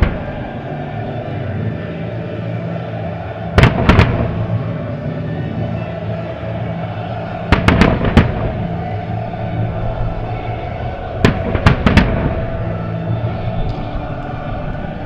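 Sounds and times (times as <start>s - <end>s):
steady background noise: 0.0s - 15.0s
aerial fireworks bangs: 3.6s - 4.5s, 7.5s - 8.8s, 11.2s - 12.6s.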